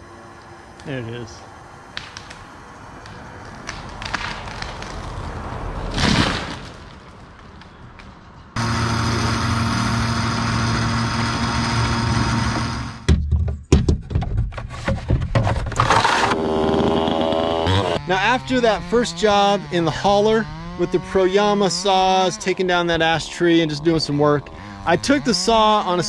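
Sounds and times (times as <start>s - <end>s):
loud steady humming drone: 0.0s - 4.2s, 8.6s - 13.1s
tree crown crashing to ground: 3.0s - 7.6s
knocks and thumps: 13.0s - 16.0s.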